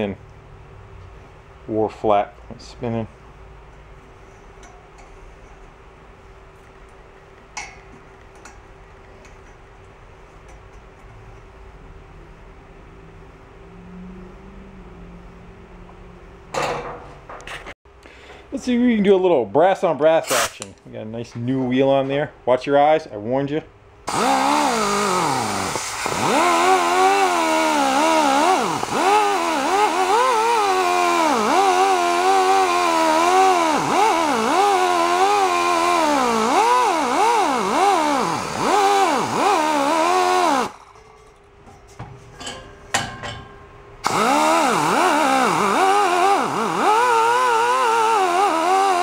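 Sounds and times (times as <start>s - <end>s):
die grinder whine: 24.1s - 40.8s, 44.0s - 49.0s.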